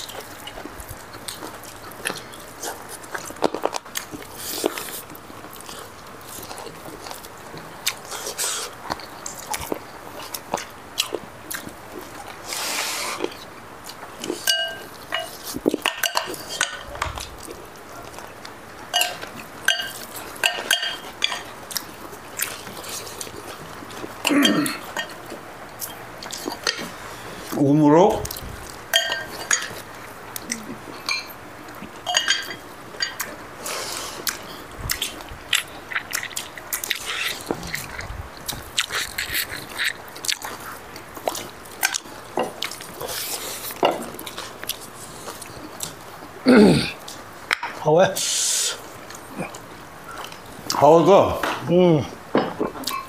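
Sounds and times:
people chewing food: 0.0s - 53.0s
tableware pings: 14.5s - 15.3s, 18.9s - 21.4s, 28.9s - 29.7s.

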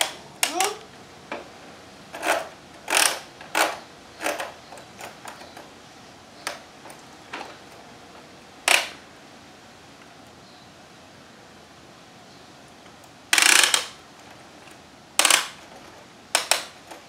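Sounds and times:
toy winch clacking: 0.0s - 0.8s, 2.2s - 5.4s, 13.4s - 14.0s, 15.2s - 15.6s, 16.4s - 17.0s.

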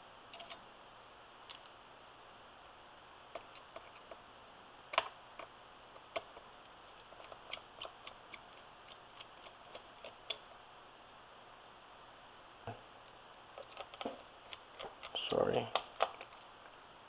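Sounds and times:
small parts clicking and tapping: 0.3s - 0.6s, 4.9s - 10.4s, 13.6s - 16.4s.

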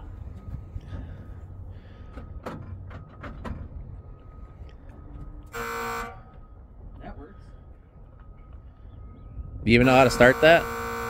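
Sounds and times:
metal clanks and knocks: 2.1s - 4.3s
truck horn toot: 5.5s - 6.4s, 9.8s - 11.0s.

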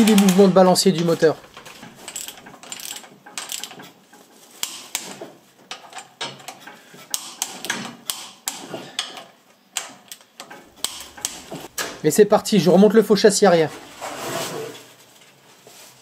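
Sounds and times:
hand tools clicking on metal: 0.0s - 12.1s.

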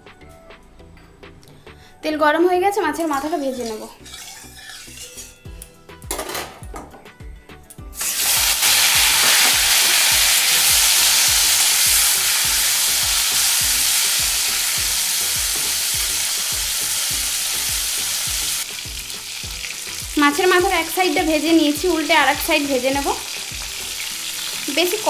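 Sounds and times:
fish head sizzling in hot oil: 3.2s - 5.4s, 8.0s - 25.0s.

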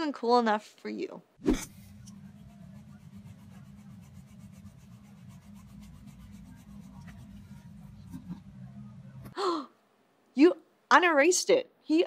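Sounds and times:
faint low hum: 1.5s - 10.9s.

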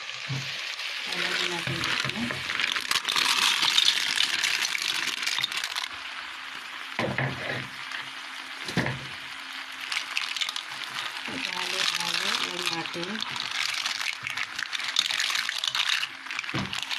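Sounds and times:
clams sizzling in hot oil: 0.0s - 16.9s
stirring in a pan: 7.2s - 16.9s.

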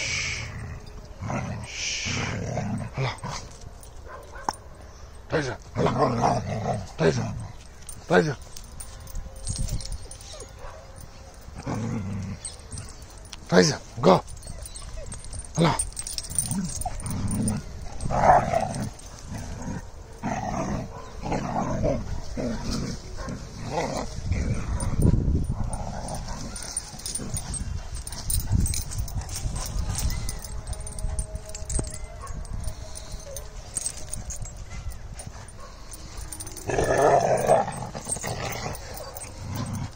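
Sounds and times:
dogs barking and growling: 0.4s - 39.9s.

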